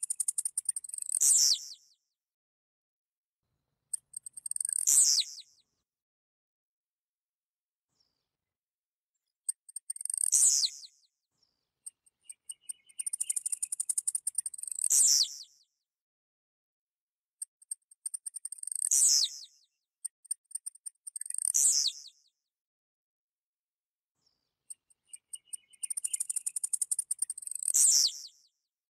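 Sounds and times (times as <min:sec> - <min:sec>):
bird singing high buzzy songs: 0:00.0 - 0:02.0, 0:04.5 - 0:05.6, 0:09.9 - 0:15.7, 0:18.4 - 0:19.8, 0:21.2 - 0:22.4, 0:24.2 - 0:28.6.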